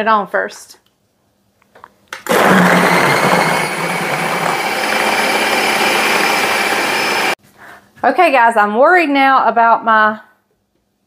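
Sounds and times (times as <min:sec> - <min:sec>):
food processor motor running: 0:02.3 - 0:07.4.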